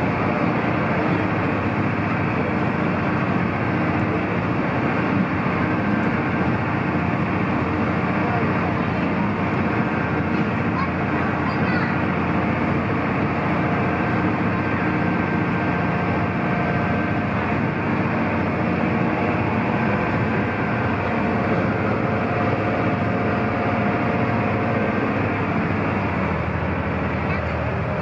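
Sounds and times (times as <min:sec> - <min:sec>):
boat engine drone: 0:00.0 - 0:28.0
water rushing along hull: 0:00.0 - 0:28.0.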